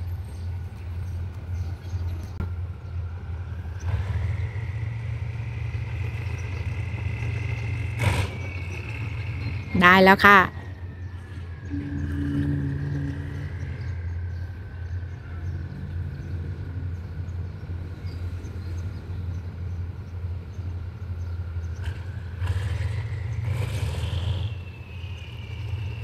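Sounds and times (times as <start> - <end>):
diesel locomotive idling: 0.0 - 26.0.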